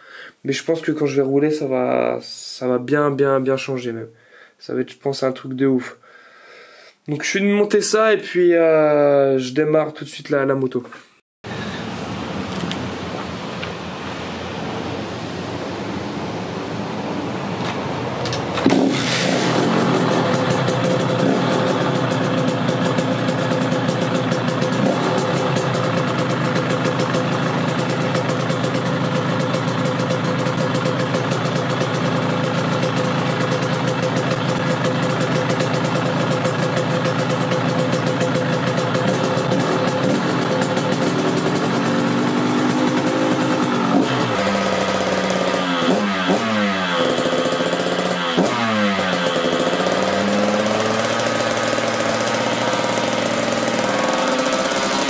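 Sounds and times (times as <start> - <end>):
engine revving: 13.9 - 55.0
dirt bike engine running: 18.5 - 55.0.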